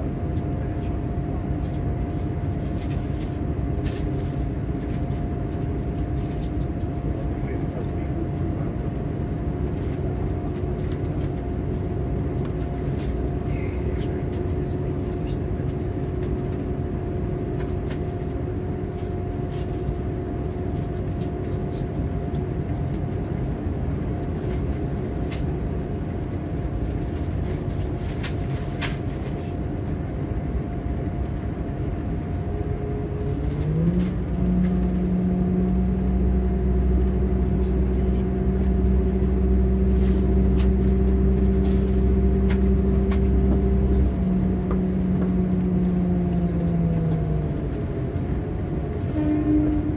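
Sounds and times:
train interior hum: 0.0 - 49.9
diesel engine revving: 32.2 - 49.9.

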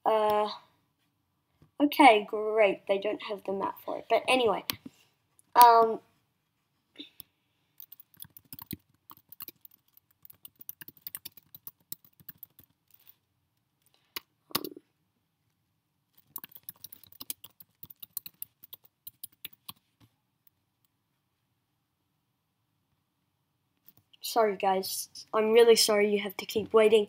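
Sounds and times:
typing on computer keyboard: 7.8 - 13.2, 16.2 - 19.8.

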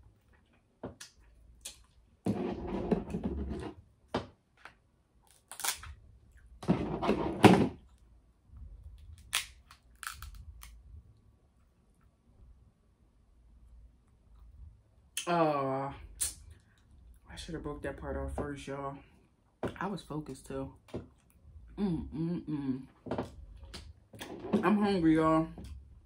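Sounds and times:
crab shell cracking: 5.2 - 5.9, 9.2 - 10.8.

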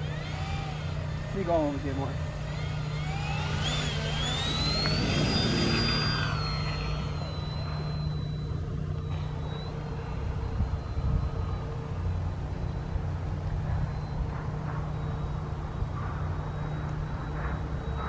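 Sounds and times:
electric motor and propeller whine: 0.0 - 18.0.

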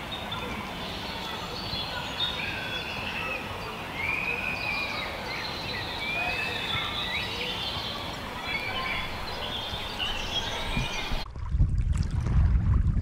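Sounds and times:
small birds chirping: 0.0 - 11.2
wind on microphone: 8.6 - 13.0.

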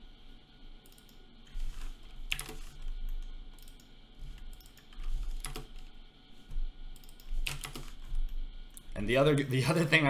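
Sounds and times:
steady low hum: 0.0 - 10.0
computer keyboard keystrokes: 2.3 - 5.8, 7.0 - 8.3.

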